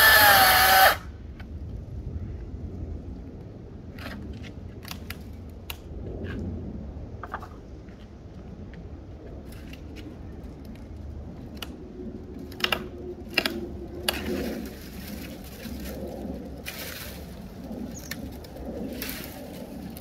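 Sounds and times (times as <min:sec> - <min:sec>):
branches snapping: 0:12.4 - 0:20.0
twigs rustling: 0:12.5 - 0:20.0.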